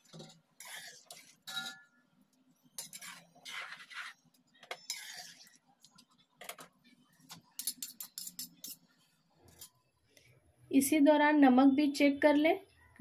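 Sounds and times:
spatula scraping pan: 0.0s - 1.8s, 2.7s - 6.0s, 7.5s - 9.7s.

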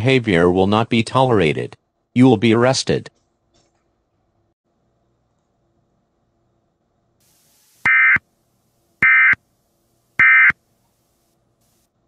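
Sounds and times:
digital data tone bursts: 7.8s - 8.2s, 9.0s - 9.4s, 10.2s - 10.6s.

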